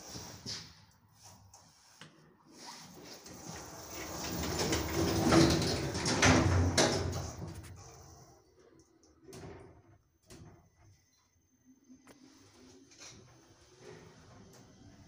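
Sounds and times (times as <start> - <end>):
elevator doors sliding closed: 3.2 - 7.9.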